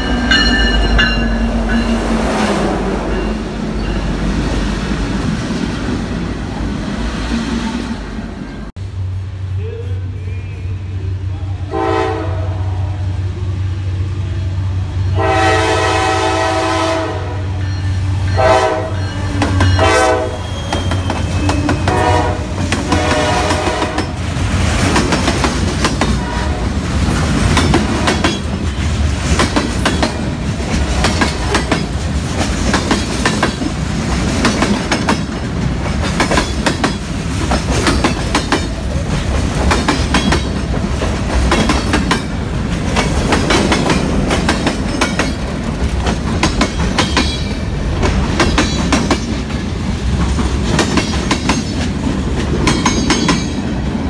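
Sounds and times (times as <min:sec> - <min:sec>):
train horn blasts: 0:11.6 - 0:13.1, 0:15.1 - 0:17.6, 0:18.3 - 0:20.8, 0:21.4 - 0:24.2, 0:26.2 - 0:26.8
train wheels clattering: 0:17.6 - 0:53.8.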